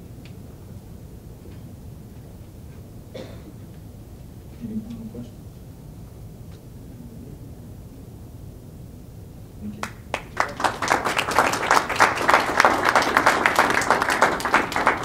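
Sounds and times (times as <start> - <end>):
audience applauding: 9.8 - 15.0.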